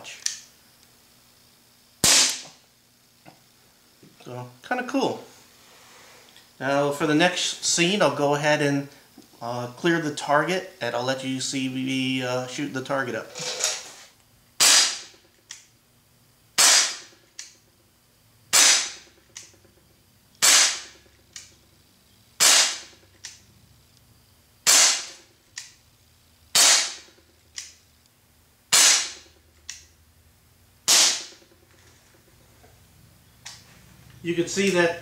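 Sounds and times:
pellet pistol shots: 2.0s - 2.6s, 14.6s - 15.1s, 16.6s - 17.1s, 18.5s - 19.1s, 20.4s - 21.0s, 22.4s - 23.0s, 24.6s - 25.2s, 26.5s - 27.1s, 28.7s - 29.3s, 30.8s - 31.4s.

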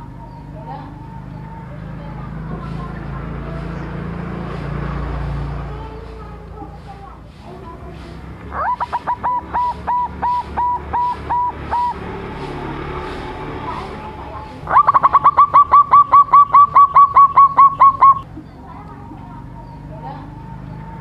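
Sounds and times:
dove cooing: 7.5s - 21.0s.

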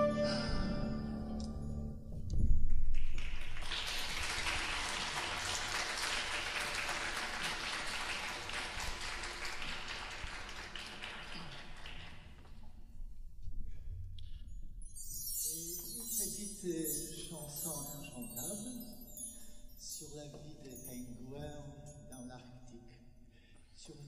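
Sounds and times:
audience applauding: 3.0s - 12.7s.

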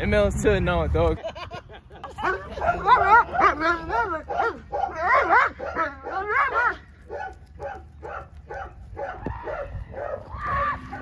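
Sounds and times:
dog barking and yelping: 2.2s - 11.0s.

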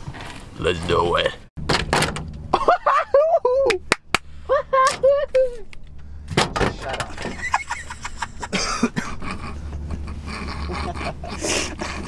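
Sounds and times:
van engine hum: 0.0s - 12.0s
man laughing: 2.5s - 3.9s, 7.2s - 12.0s
man coughing: 8.4s - 9.2s.

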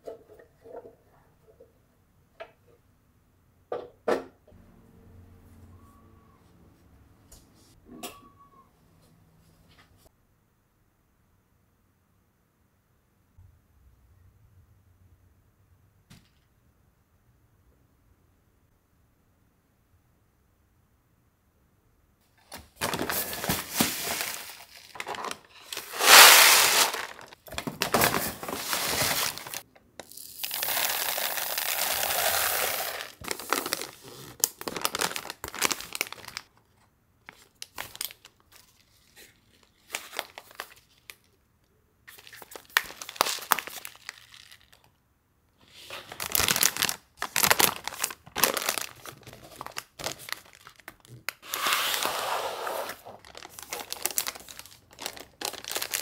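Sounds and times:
paper bag crinkling: 22.8s - 29.7s, 30.3s - 36.5s, 37.3s - 41.3s, 42.1s - 44.9s, 45.8s - 56.0s
rice pouring into paper bag: 25.6s - 27.3s, 28.0s - 34.0s.

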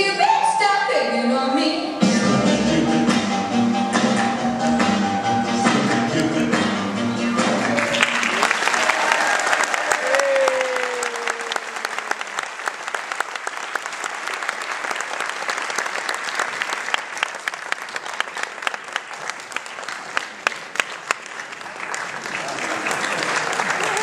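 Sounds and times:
audience applauding: 7.4s - 24.0s.

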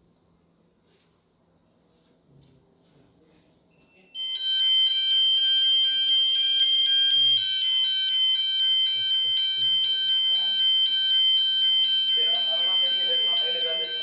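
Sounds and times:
fire alarm electronic tone: 3.8s - 14.0s.

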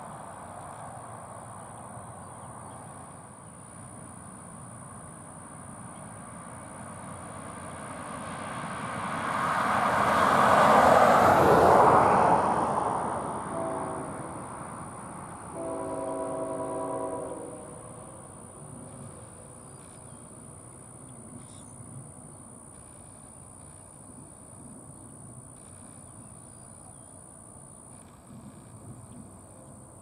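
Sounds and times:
train rumble: 0.0s - 30.0s
distant locomotive air horn: 13.2s - 19.0s.

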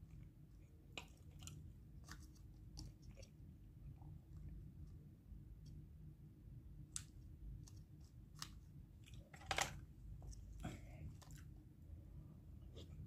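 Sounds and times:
chewing and crunching: 0.0s - 3.4s
low steady hum: 0.0s - 13.0s.

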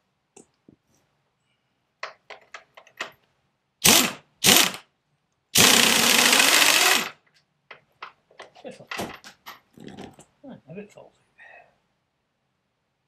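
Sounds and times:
air impact wrench hammering: 3.8s - 4.8s, 5.6s - 7.2s.

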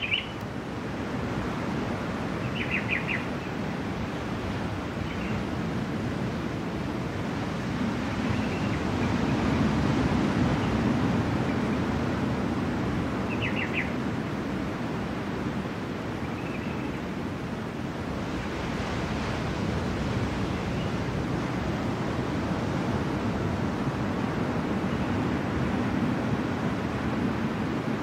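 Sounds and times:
bird chirping: 0.0s - 0.4s, 2.4s - 3.3s, 13.3s - 13.9s
ocean surf washing ashore: 0.0s - 28.0s.

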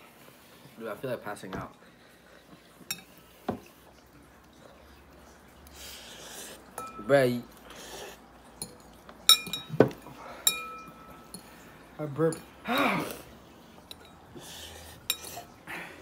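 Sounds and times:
forks clinking on ceramic bowls: 6.8s - 7.2s, 8.6s - 11.5s, 13.8s - 14.2s, 15.1s - 15.5s.

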